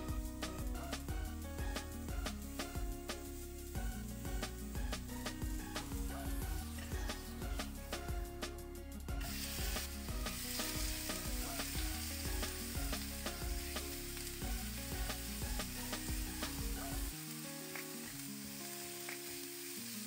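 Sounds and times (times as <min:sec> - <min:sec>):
meat sizzling in hot oil: 0:09.2 - 0:20.0.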